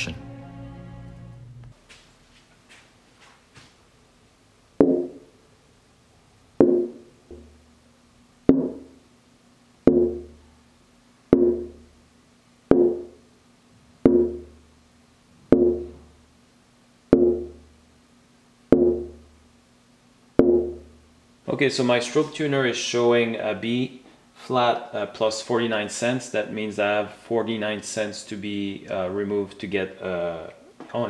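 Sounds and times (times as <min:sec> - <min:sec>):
wooden plate tapped ringing: 0:04.8 - 0:05.2, 0:06.6 - 0:07.5, 0:08.5 - 0:08.9, 0:09.9 - 0:10.4, 0:11.3 - 0:11.8, 0:12.7 - 0:13.2, 0:14.1 - 0:14.6, 0:15.5 - 0:16.0, 0:17.2 - 0:17.6, 0:18.7 - 0:19.2, 0:20.4 - 0:20.9.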